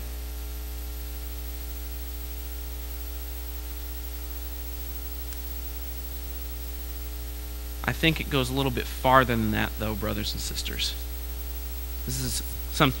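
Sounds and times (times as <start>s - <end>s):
electrical mains hum: 0.0s - 13.0s
constant hiss: 1.2s - 13.0s.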